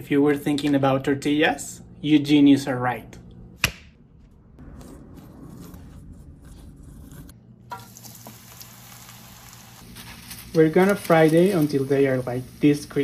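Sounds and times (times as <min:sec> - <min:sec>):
steady hiss: 0:07.9 - 0:13.0.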